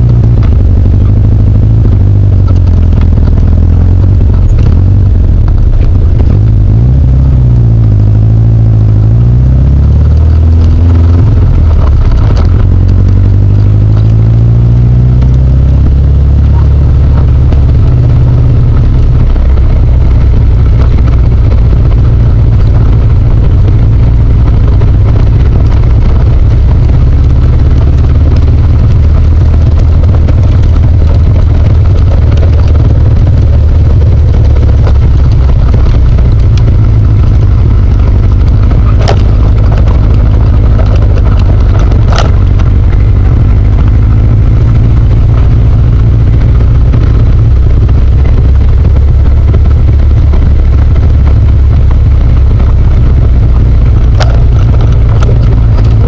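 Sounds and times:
car engine accelerating: 0:00.0 - 0:56.0.

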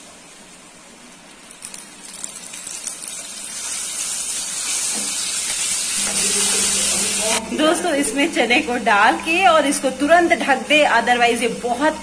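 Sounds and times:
chickpeas sizzling in oil: 0:01.5 - 0:07.4.

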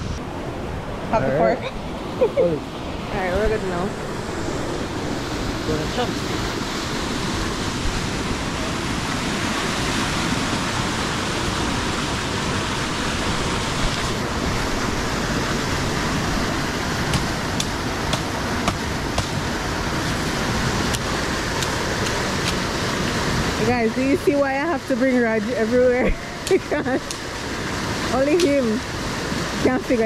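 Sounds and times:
river rapids rushing: 0:00.0 - 0:30.0
blade chopping bamboo: 0:17.1 - 0:19.4, 0:20.9 - 0:22.6.

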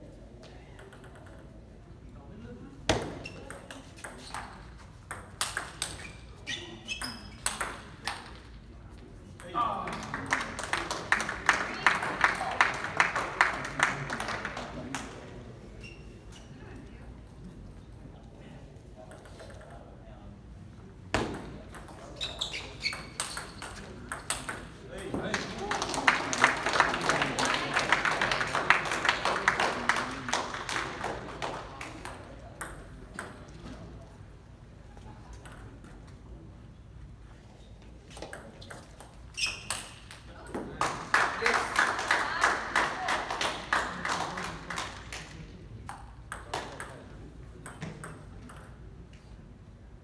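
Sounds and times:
crowd clapping: 0:09.9 - 0:15.0, 0:25.3 - 0:32.0, 0:40.8 - 0:45.3.

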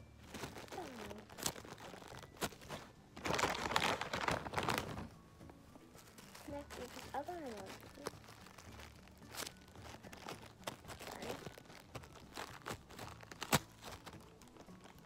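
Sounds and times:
plastic packaging crinkling: 0:00.2 - 0:05.2, 0:05.9 - 0:15.0
sharp plastic snaps: 0:10.2 - 0:15.0.

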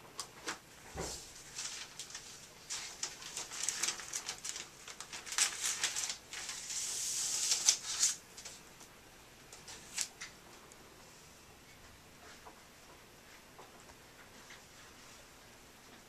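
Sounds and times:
plastic bag crinkling: 0:01.2 - 0:08.6.

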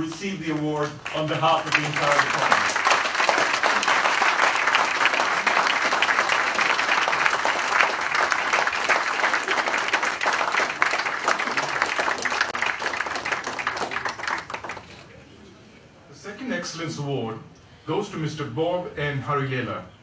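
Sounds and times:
audience applauding: 0:00.0 - 0:15.1.

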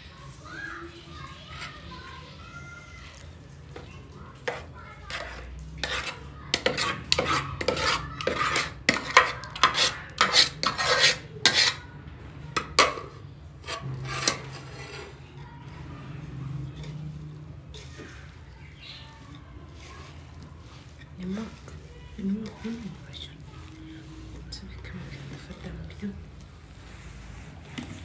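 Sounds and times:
metal spoon scraping steel bowl: 0:04.4 - 0:11.9, 0:12.6 - 0:26.2.

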